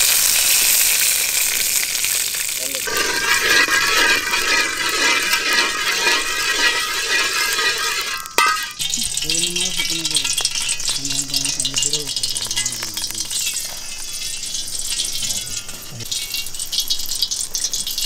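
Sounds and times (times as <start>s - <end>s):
fat sizzling in a pan: 0.0s - 18.0s
person speaking: 8.8s - 13.5s.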